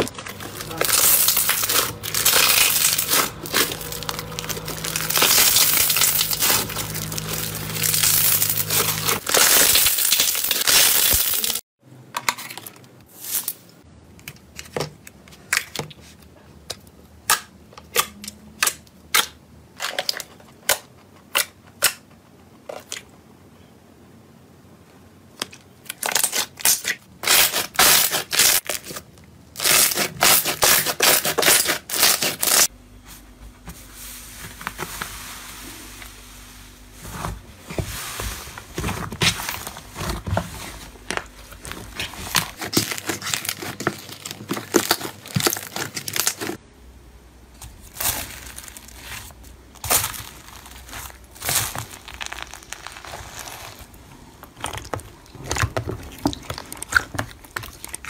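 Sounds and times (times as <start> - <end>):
foam-bead slime crunching: 0.0 - 11.6, 25.9 - 32.7, 34.3 - 46.6, 47.6 - 58.0
slime crackling and popping: 0.0 - 11.6, 41.6 - 46.5, 47.8 - 58.0.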